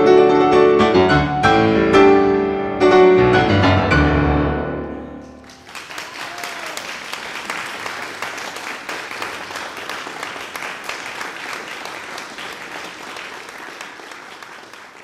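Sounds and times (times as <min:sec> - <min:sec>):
audience applauding: 0:05.3 - 0:15.0.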